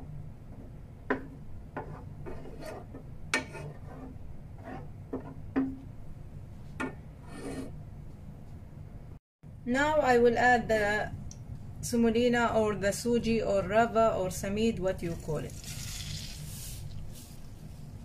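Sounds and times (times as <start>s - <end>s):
low steady hum: 0.0s - 18.0s
wooden spoon scraping a pan: 1.8s - 5.4s, 7.2s - 7.8s.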